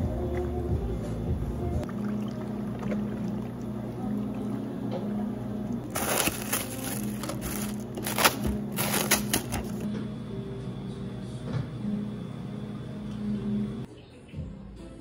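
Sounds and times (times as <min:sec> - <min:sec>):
plastic cling wrap crinkling: 0:05.9 - 0:09.8.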